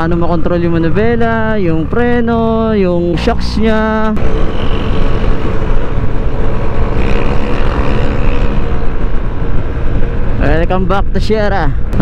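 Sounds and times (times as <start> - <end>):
wind buffeting microphone: 0.0 - 12.0
scooter engine running: 4.2 - 9.6.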